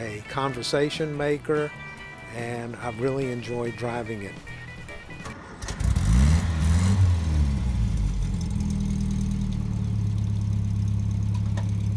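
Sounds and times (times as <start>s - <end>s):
car engine revving and idling: 5.4s - 11.9s.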